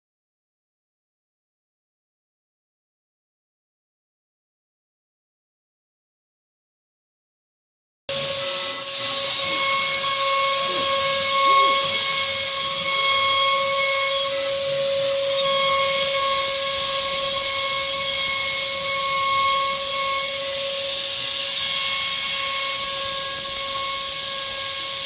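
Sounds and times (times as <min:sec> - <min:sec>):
bit cutting wood hiss: 0:08.1 - 0:25.0
router spindle whining: 0:08.1 - 0:25.0.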